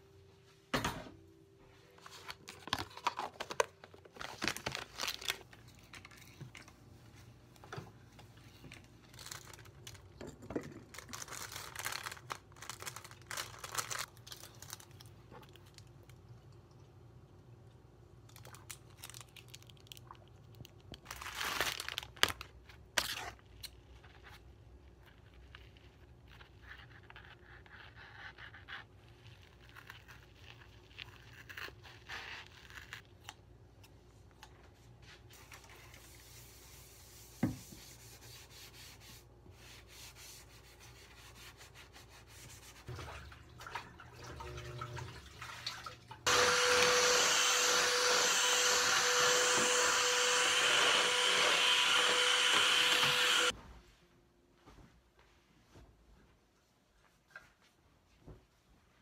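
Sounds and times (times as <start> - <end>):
stick vacuum cleaner running: 46.3 - 53.5.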